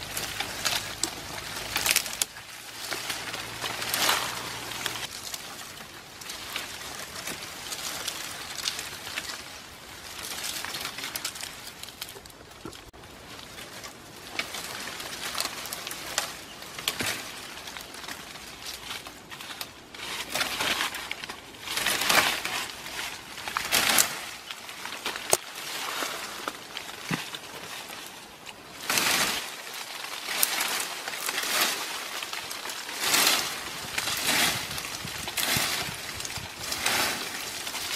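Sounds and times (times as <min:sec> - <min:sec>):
leaves and branches crunching: 0:00.0 - 0:37.9.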